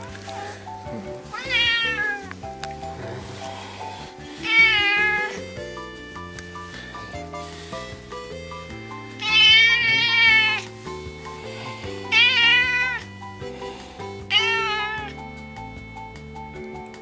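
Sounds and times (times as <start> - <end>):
soft background music: 0.0 - 17.0
cat meowing: 1.2 - 2.3, 4.4 - 5.4, 9.2 - 10.7, 12.1 - 13.1, 14.3 - 15.2.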